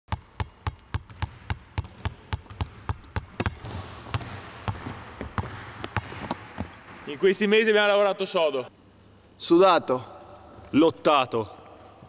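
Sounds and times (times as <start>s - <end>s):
basketball bouncing on hardwood: 0.1s - 6.8s.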